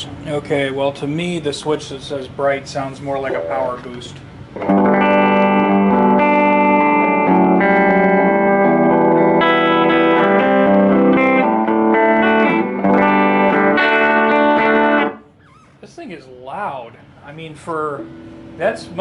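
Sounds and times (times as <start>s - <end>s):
loud electric guitar chords: 4.6s - 15.2s, 18.0s - 18.6s.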